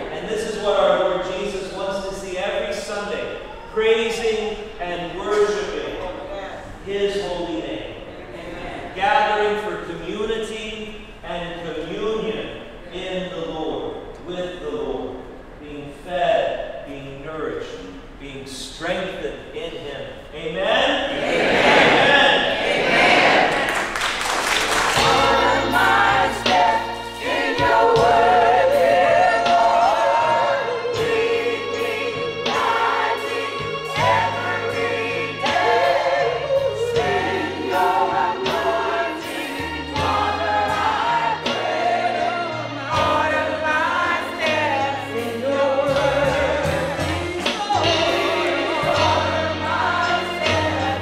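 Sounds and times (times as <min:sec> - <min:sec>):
gospel choir singing: 0:00.0 - 0:10.4, 0:20.9 - 0:51.0.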